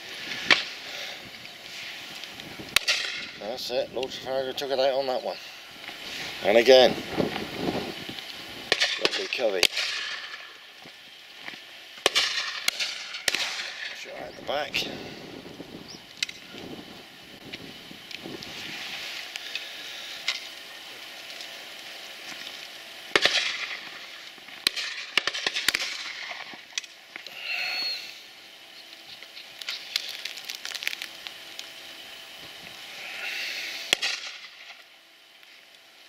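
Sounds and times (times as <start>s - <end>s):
shotgun shots: 12.0s - 14.0s, 23.1s - 23.7s.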